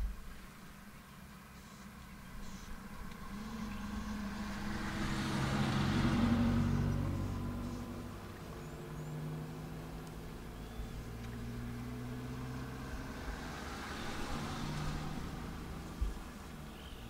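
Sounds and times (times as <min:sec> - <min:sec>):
vehicle engine idling: 0:00.0 - 0:17.0
faint bird chirps: 0:01.0 - 0:04.6, 0:10.4 - 0:11.6, 0:16.1 - 0:17.0.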